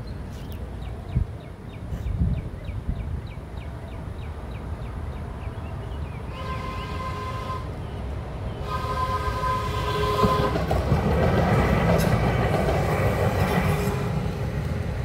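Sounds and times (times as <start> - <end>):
train rumble: 0.2 - 15.0
train horn blasts: 6.3 - 7.8, 8.6 - 10.7, 13.6 - 14.3.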